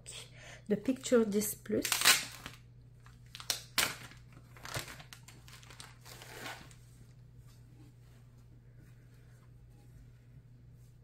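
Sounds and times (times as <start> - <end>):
plastic bag crinkling: 1.8 - 6.8.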